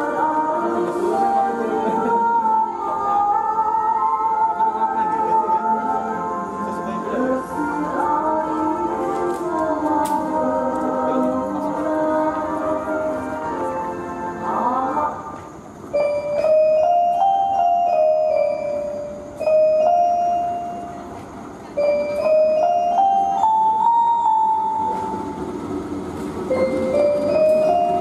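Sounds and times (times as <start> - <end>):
station public-address chime: 0.0 - 9.2, 15.9 - 28.0
faint diesel locomotive: 0.0 - 28.0.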